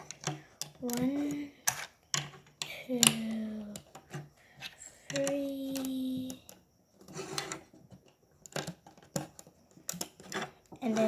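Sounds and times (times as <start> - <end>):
plastic bricks clicking: 5.1 - 6.6.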